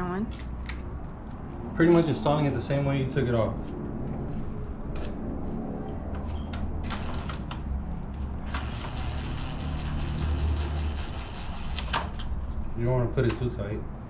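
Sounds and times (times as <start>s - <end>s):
cordless drill driving screw: 8.5s - 12.0s.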